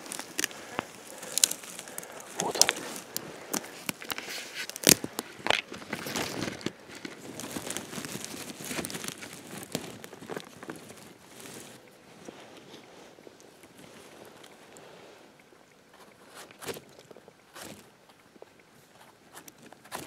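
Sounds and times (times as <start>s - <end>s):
twigs crackling and rustling: 0.0s - 15.0s.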